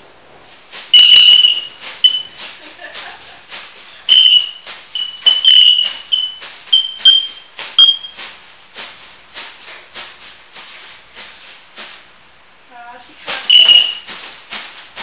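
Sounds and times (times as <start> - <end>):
high piercing bird whistles: 0.9 - 2.4, 4.1 - 8.2, 13.4 - 14.1
soft raspy bird chirps: 4.1 - 8.1.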